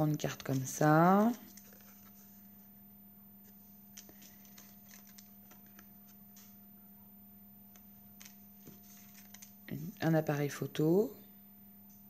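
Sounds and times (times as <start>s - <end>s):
steady low hum: 0.0s - 12.0s
cards clicking and tapping: 4.0s - 6.5s, 7.8s - 9.6s.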